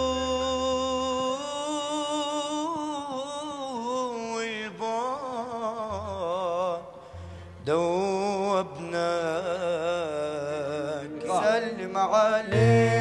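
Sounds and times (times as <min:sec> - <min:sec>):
man singing melismatic notes: 0:00.0 - 0:13.0.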